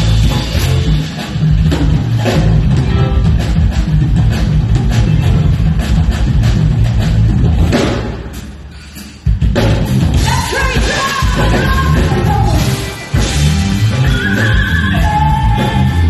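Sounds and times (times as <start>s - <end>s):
funk band playing: 0.0s - 16.0s
woman singing: 10.2s - 12.8s, 13.9s - 16.0s.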